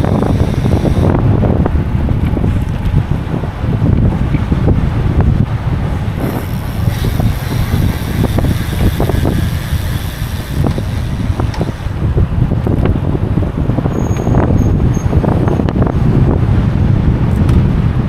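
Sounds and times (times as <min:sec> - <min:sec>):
bicycle knocks and rattles: 0:00.0 - 0:04.6, 0:06.1 - 0:13.2
wind buffeting microphone: 0:00.0 - 0:18.0.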